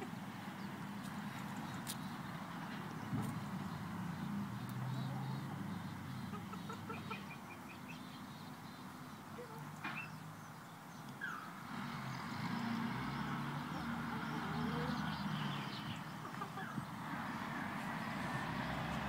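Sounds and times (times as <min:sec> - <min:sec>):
hens clucking: 0:04.9 - 0:07.8, 0:16.2 - 0:17.3.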